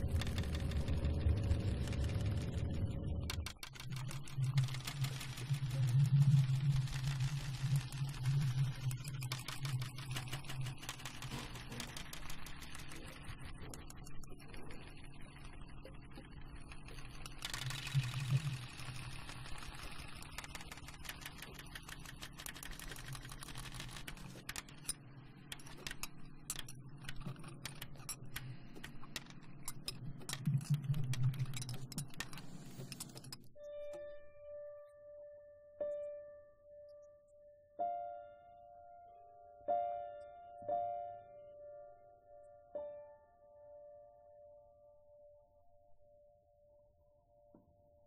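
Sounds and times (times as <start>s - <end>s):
low hum: 0.0s - 10.8s
dense clatter of small clicks: 0.0s - 33.5s.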